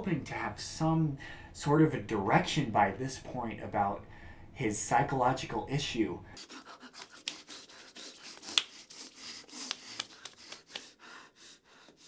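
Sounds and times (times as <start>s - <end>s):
hands scratching and rubbing clothing: 6.4s - 10.9s.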